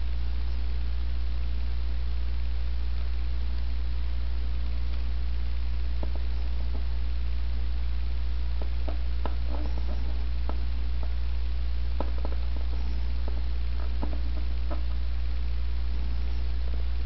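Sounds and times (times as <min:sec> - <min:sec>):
low electrical hum: 0:00.0 - 0:17.0
fingertips rubbing a decal: 0:08.6 - 0:11.2.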